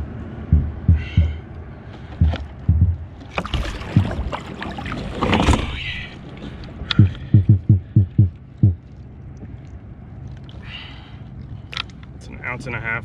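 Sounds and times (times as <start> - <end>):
short low thumps: 0.0 - 1.5, 2.1 - 4.4, 6.9 - 8.8
water splashing and streaming: 3.0 - 7.4, 8.4 - 12.4.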